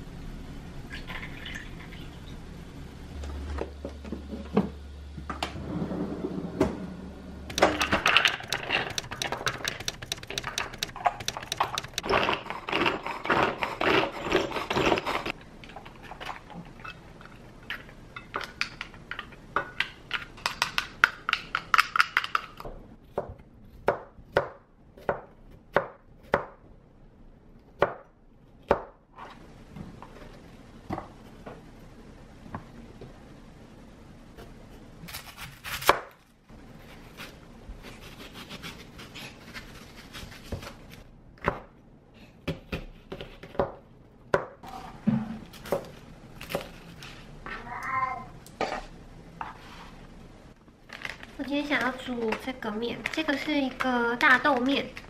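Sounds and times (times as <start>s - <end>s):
knife chopping on plastic board: 7.5s - 12.9s.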